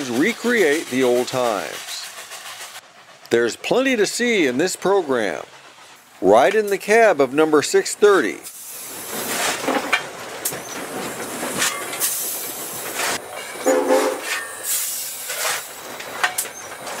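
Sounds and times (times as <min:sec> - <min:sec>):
steam locomotive running: 0:00.0 - 0:17.0
coal being shovelled: 0:09.1 - 0:10.0, 0:13.0 - 0:15.7
metal clanks: 0:09.3 - 0:12.2, 0:12.9 - 0:17.0.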